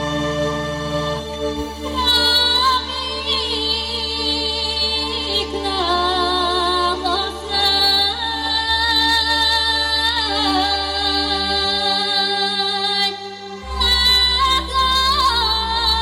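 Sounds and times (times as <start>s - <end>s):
bass line: 0.0s - 11.8s
woman singing with vibrato: 0.0s - 16.0s.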